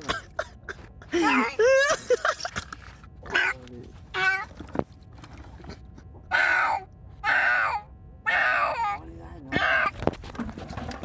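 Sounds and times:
cat yowling and screeching: 0:03.3 - 0:04.5, 0:06.3 - 0:09.9.

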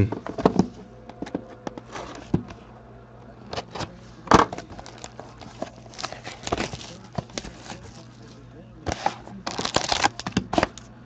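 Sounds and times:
plastic wrap rustling: 0:04.5 - 0:10.9.

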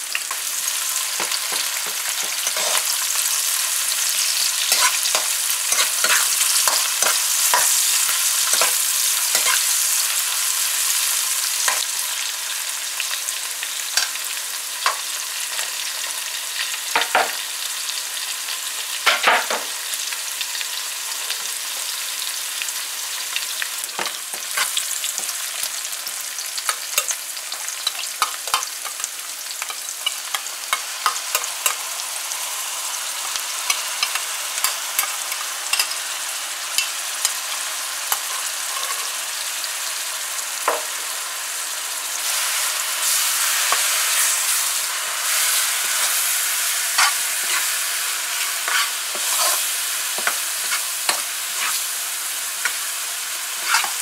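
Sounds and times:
onions sizzling in oil: 0:00.0 - 0:54.0
metal spoon scraping a pan: 0:00.2 - 0:11.9, 0:24.0 - 0:25.4, 0:26.6 - 0:29.0, 0:38.1 - 0:39.2, 0:45.3 - 0:51.9, 0:53.5 - 0:54.0.

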